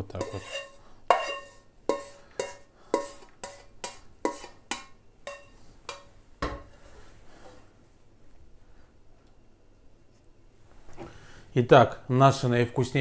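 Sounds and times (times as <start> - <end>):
wok clanking on burner grate: 0.0 - 6.7
spatula tapping a wok: 0.2 - 6.7.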